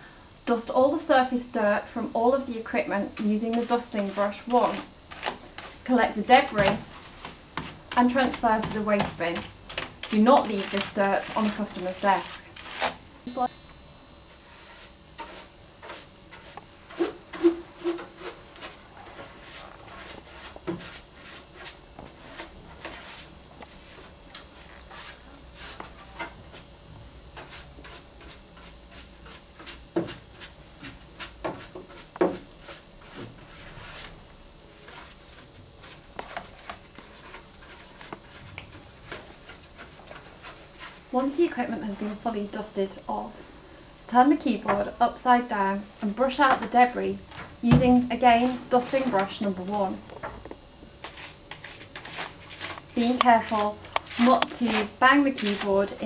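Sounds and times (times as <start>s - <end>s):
brush rubbing over plastic: 3.2s - 13.0s, 14.3s - 26.7s, 27.4s - 41.2s, 51.0s - 56.0s.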